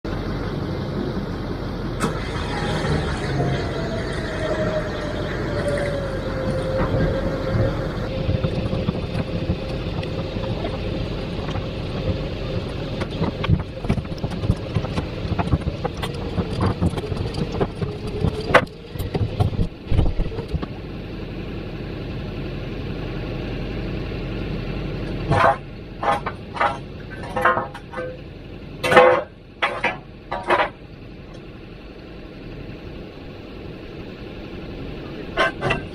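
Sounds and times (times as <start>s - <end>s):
winch motor rumble and whine: 0.1s - 35.9s
metal knocks and clanks: 25.2s - 30.8s, 35.3s - 35.9s.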